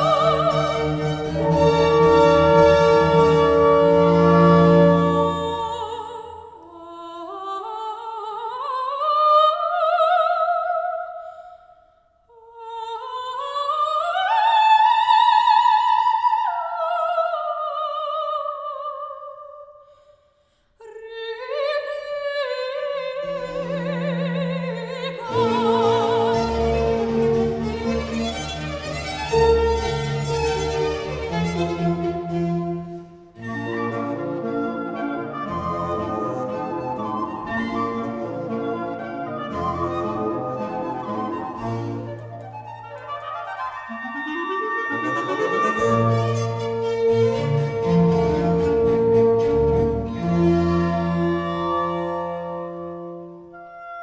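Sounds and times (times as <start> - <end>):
orchestra playing: 0.0 - 5.6, 25.3 - 53.4
soprano singing opera: 0.0 - 11.5, 12.3 - 19.8, 20.8 - 28.4.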